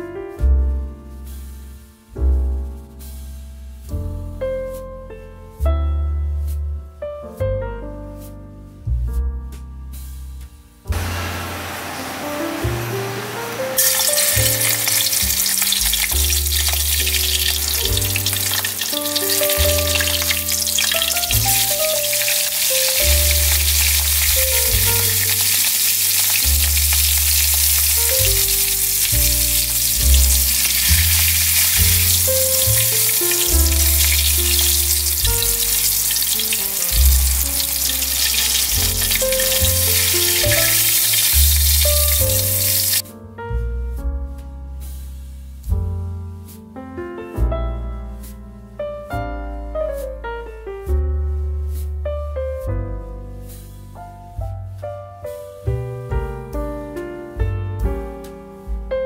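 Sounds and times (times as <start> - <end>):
hot oil sizzling in a wok: 3.0 - 3.3, 10.9 - 43.0, 44.8 - 45.2.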